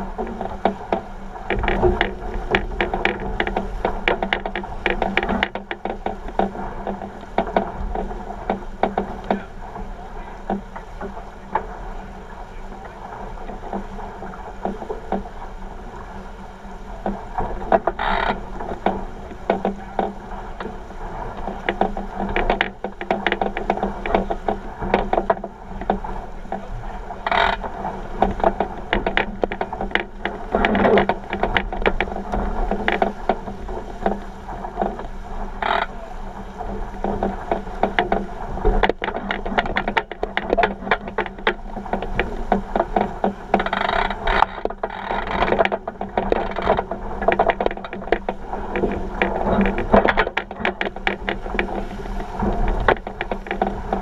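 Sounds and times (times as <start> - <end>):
hull rushing through water: 0.0 - 54.0
hull thumping on waves: 0.0 - 54.0
water splashing against hull: 0.0 - 54.0
small clicks and knocks: 0.1 - 9.6, 10.4 - 11.7, 12.5 - 15.4, 17.0 - 54.0.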